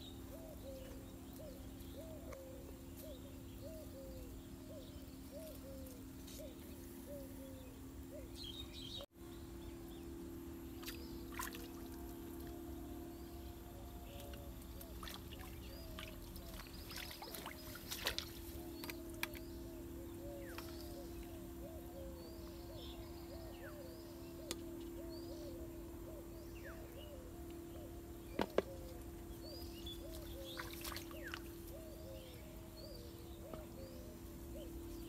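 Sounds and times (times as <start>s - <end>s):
birds chirping: 0.0s - 35.0s
steady low hum: 0.0s - 35.0s.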